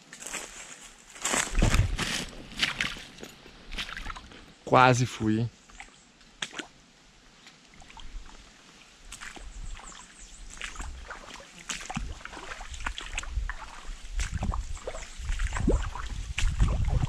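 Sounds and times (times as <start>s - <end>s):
leaves and twigs crackling underfoot: 0.0s - 4.4s, 7.4s - 17.0s
low microphone rumble: 1.5s - 2.6s, 14.2s - 17.0s.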